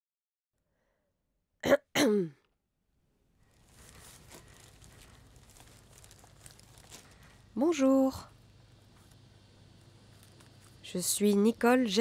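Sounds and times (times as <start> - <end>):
person clearing throat: 1.6 - 2.4
person coughing: 1.6 - 2.4.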